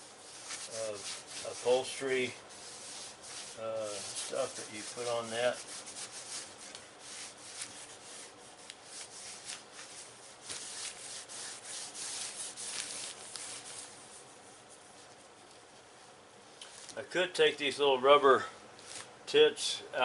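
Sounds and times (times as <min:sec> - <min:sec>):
cloth rag scrubbing plastic: 0:00.0 - 0:15.3.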